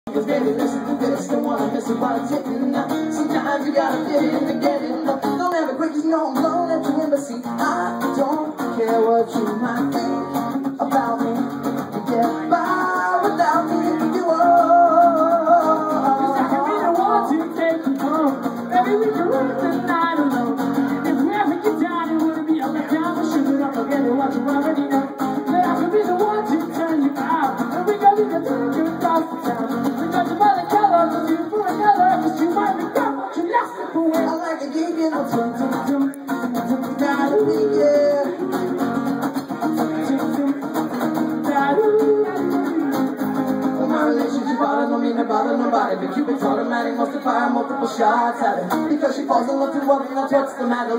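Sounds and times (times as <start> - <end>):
acoustic guitar strumming: 0.1 - 50.9
men singing: 0.1 - 50.9.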